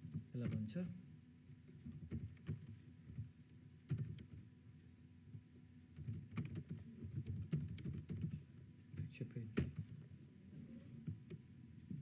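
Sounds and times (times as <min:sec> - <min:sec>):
keyboard keys clicking: 0:01.8 - 0:04.5, 0:05.9 - 0:08.4.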